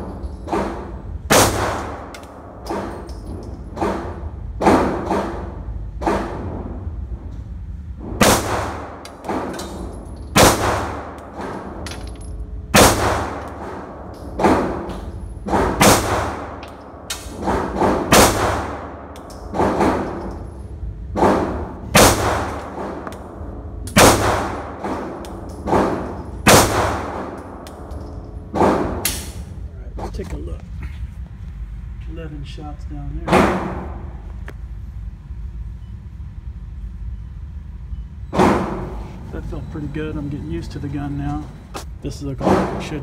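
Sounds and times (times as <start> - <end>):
pistol shots ringing indoors: 0.1 - 6.7, 8.2 - 29.6.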